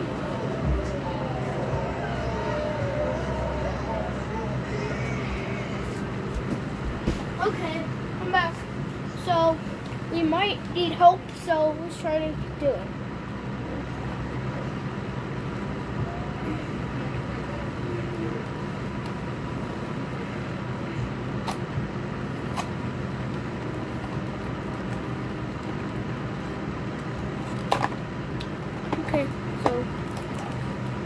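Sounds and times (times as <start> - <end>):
low hum and hiss: 0.0 - 31.0.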